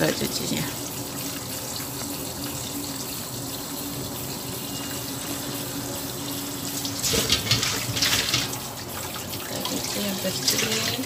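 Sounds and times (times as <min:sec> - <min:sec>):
tap water running into colander: 0:00.0 - 0:11.0.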